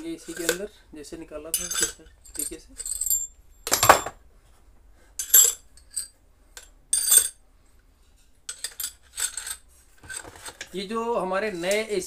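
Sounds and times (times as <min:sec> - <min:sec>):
drill bits clinking together: 0:01.6 - 0:04.2.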